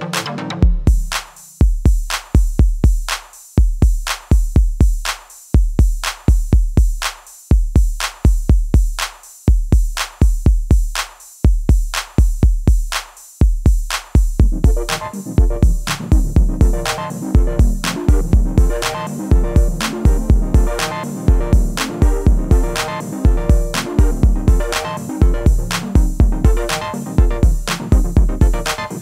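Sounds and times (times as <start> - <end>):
drum machine beat: 0.0 - 29.0
synth melody: 14.4 - 29.0.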